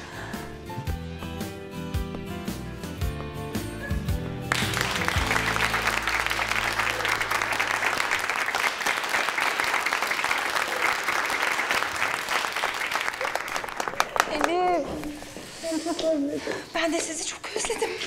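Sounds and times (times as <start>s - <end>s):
background music with low notes: 0.0s - 7.4s
small group applauding: 4.5s - 14.8s.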